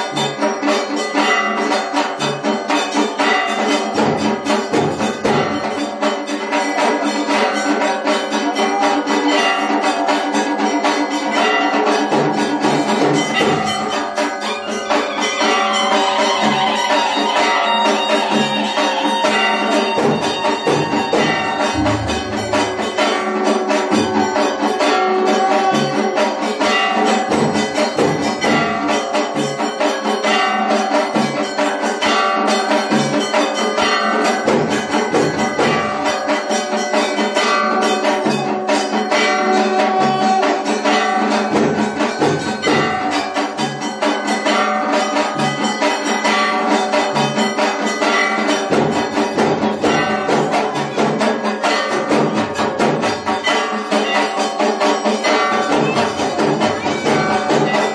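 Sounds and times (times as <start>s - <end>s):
bells struck: 0.0s - 57.9s
drum beats: 0.0s - 57.9s
sustained melodic tones: 20.2s - 25.2s.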